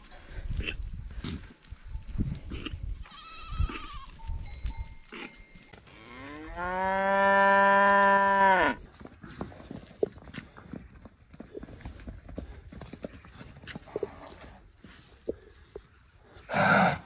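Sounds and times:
goat bleat: 3.0 - 4.2
cow mooing: 5.9 - 8.8.

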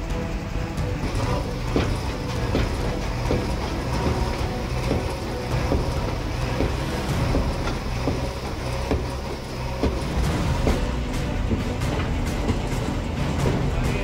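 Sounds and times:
diesel engine running under load: 0.0 - 14.0
masonry knocking and cracking: 1.0 - 14.0.

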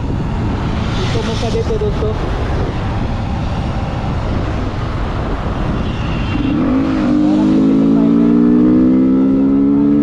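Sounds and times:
wind buffeting microphone: 0.0 - 9.5
motorcycle engine accelerating: 6.4 - 10.0.

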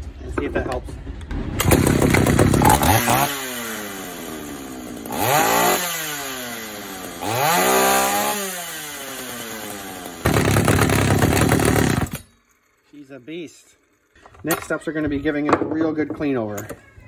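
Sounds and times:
chainsaw revving: 1.6 - 12.3.

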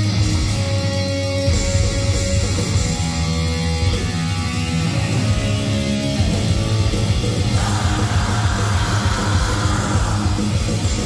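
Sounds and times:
distorted electric guitar riff: 0.0 - 11.0
harsh screamed vocals: 7.5 - 11.0.

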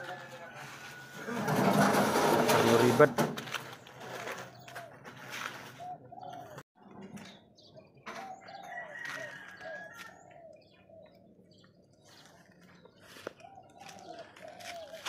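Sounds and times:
birds chirping: 3.6 - 15.0.

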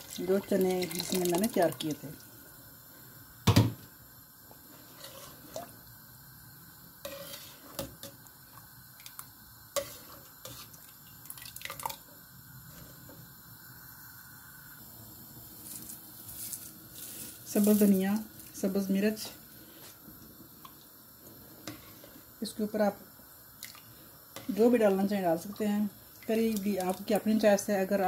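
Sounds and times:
liquid sloshing in pot: 0.0 - 2.4, 4.7 - 5.9, 7.1 - 13.1.

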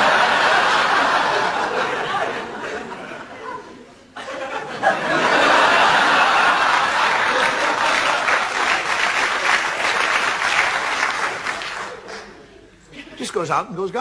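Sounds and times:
audience laughing: 0.0 - 10.2
audience applauding: 5.4 - 12.4.

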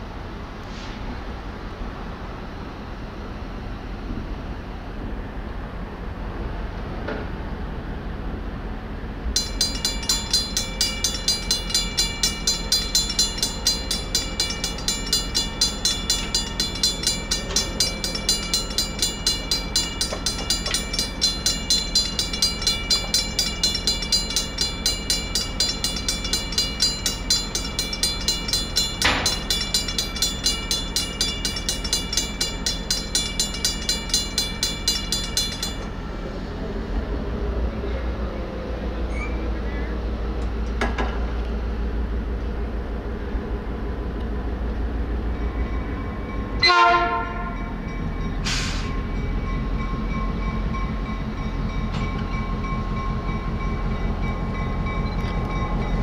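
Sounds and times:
railroad crossing bell ringing: 9.3 - 36.3, 44.6 - 56.0.

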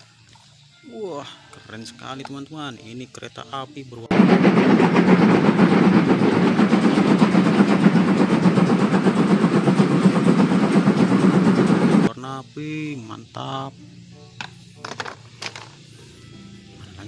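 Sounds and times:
steam locomotive chuffing: 4.0 - 12.1.

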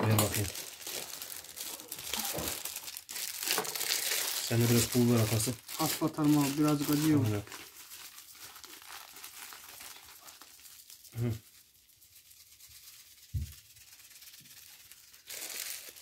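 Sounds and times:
faint rustling and rubbing: 4.5 - 16.0.

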